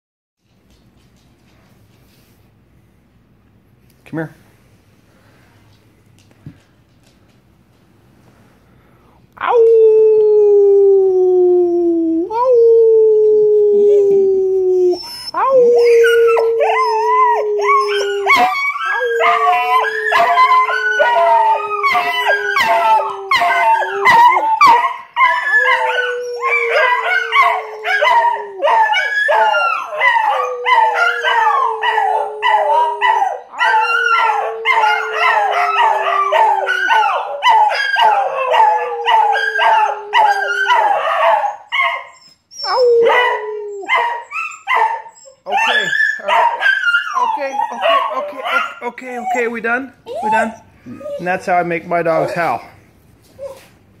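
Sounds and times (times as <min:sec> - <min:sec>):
dogs howling: 0:12.3 - 0:51.6.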